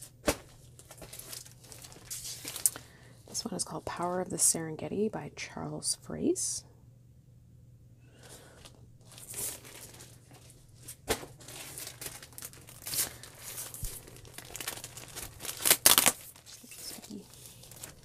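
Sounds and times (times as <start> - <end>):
plastic packaging crinkling: 0.3 - 3.4, 8.2 - 18.0.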